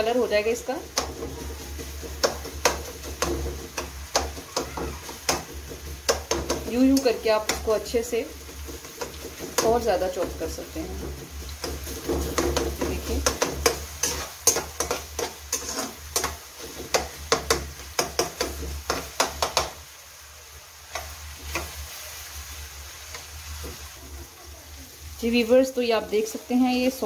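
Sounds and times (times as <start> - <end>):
onions sizzling in oil: 0.0 - 27.0
metal spatula scraping a pan: 1.0 - 19.7.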